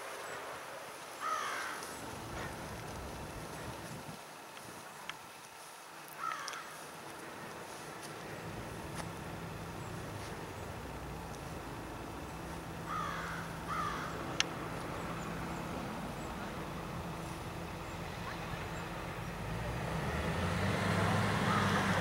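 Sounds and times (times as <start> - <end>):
distant traffic hum: 0.0 - 22.0
bird calls: 1.1 - 4.2, 9.0 - 19.5.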